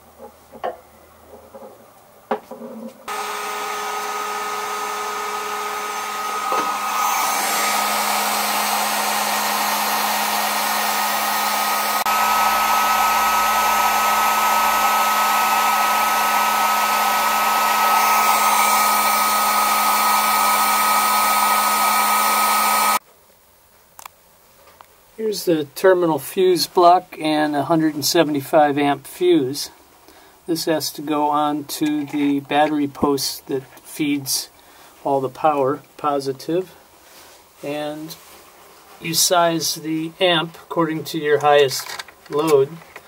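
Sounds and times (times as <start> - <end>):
heat gun blowing hot air: 3.1 - 23.0.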